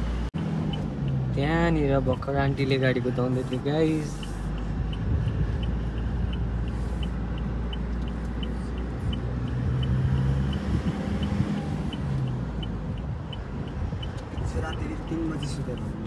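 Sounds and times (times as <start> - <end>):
car engine and road noise: 0.0 - 16.0
light regular ticking: 0.4 - 16.0.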